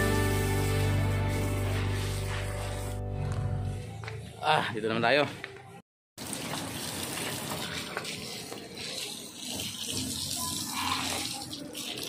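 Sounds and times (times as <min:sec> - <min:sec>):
hose water splashing on paving: 0:00.0 - 0:03.0, 0:06.2 - 0:12.0.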